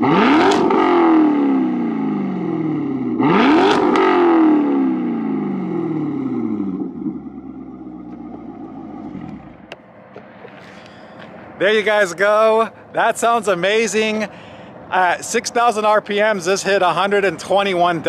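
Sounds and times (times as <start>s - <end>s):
car engine revving: 0.0s - 10.9s
car engine idling with deep growl: 4.6s - 13.4s.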